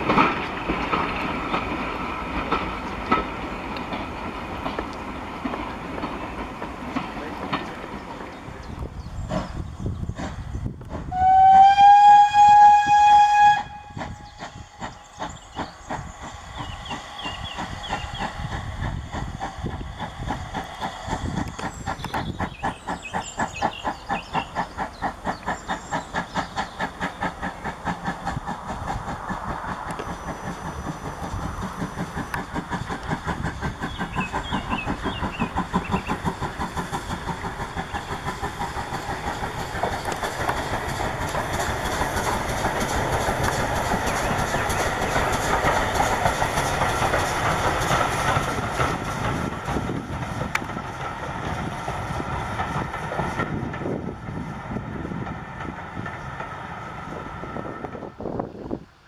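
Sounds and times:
steam locomotive exhaust beats: 0.0s - 59.0s
steam locomotive whistle: 11.1s - 14.6s.

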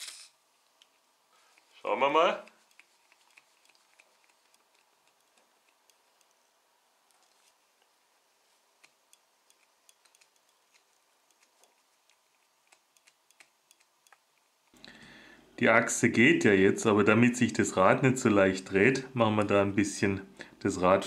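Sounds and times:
speedometer clicks and ticks: 8.8s - 11.8s, 12.7s - 14.3s.

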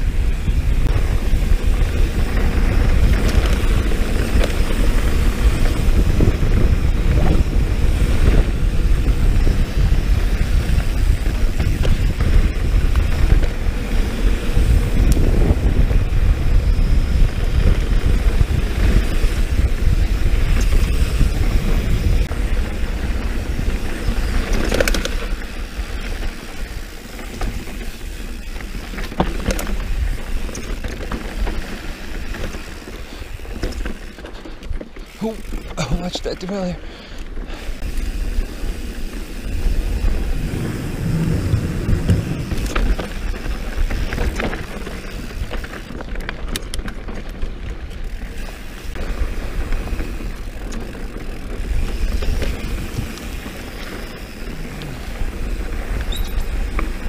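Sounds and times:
wind rushing over microphone: 0.0s - 35.7s, 37.1s - 57.0s
bike rattling: 0.0s - 57.0s.

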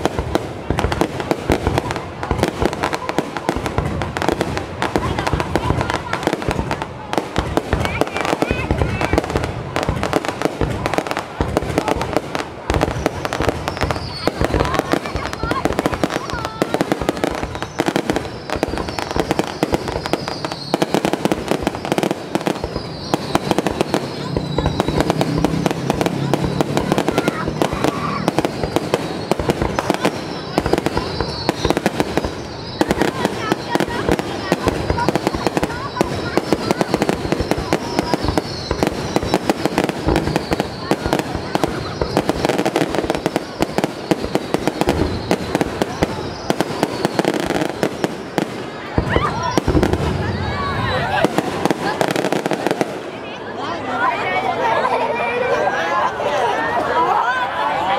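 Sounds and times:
fireworks crackling and popping: 0.0s - 53.4s
falling firework whistle: 12.8s - 52.8s.

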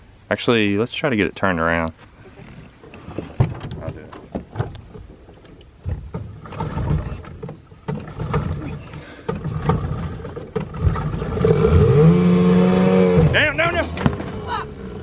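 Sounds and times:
outboard motor revving: 6.2s - 15.0s.

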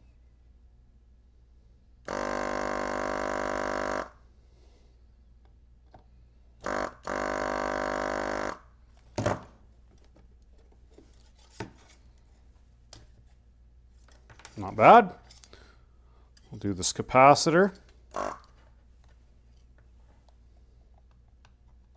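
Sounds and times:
desoldering pump buzzing: 2.1s - 4.1s, 6.6s - 8.6s, 18.1s - 18.5s.

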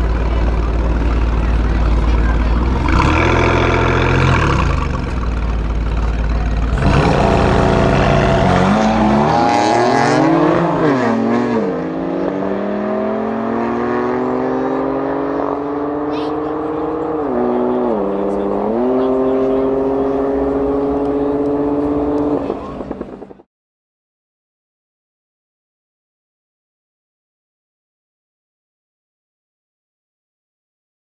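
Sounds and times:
car engines revving: 0.0s - 23.5s
cars accelerating hard: 1.4s - 5.4s, 6.7s - 23.4s.

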